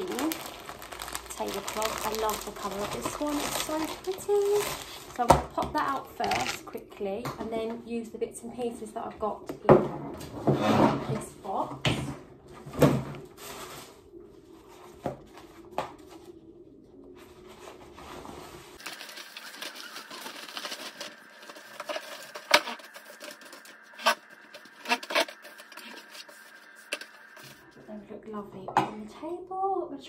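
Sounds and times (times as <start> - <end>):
tablecloth rustling: 0.0 - 5.2, 17.2 - 27.7.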